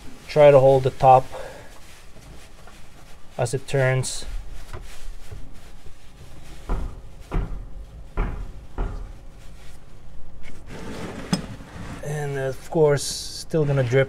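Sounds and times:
plastic bag rustling: 0.0s - 12.1s
dull knocks and bumps: 6.2s - 9.2s.

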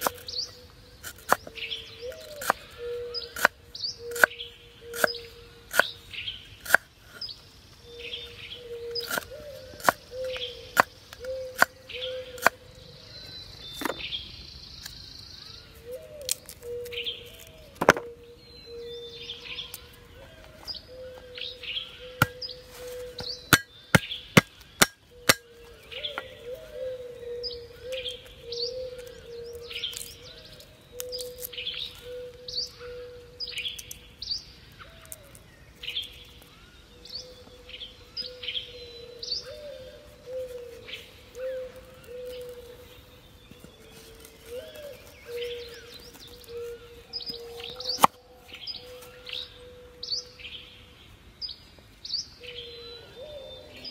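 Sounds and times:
birds chirping: 0.0s - 53.9s
cleaver knocking on wooden board: 17.8s - 18.1s.

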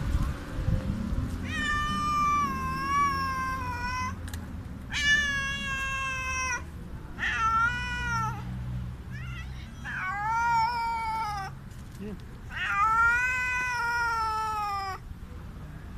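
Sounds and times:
cat meowing loudly: 1.4s - 4.2s, 4.9s - 8.5s, 9.1s - 11.6s, 12.5s - 15.0s.

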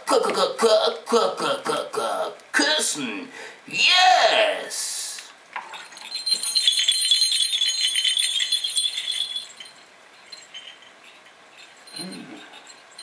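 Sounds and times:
metallic jingling rattle: 5.6s - 13.0s.

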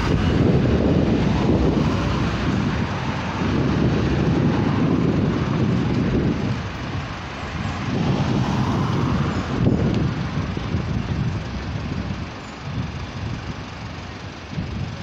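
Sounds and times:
cars driving past: 0.0s - 13.1s
wind rumbling on microphone: 0.0s - 15.0s.

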